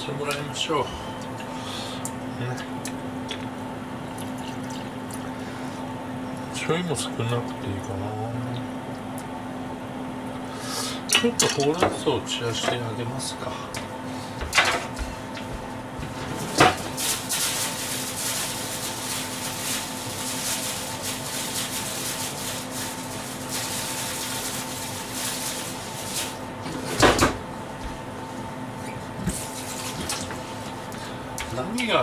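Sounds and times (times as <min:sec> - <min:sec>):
pots simmering on gas stove: 0:00.0 - 0:32.0
steady hum and hiss: 0:00.0 - 0:32.0.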